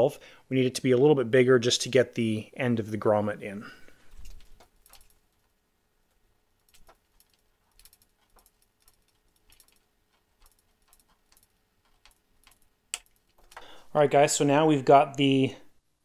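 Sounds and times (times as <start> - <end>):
small clicks and ticks: 4.1 - 13.7.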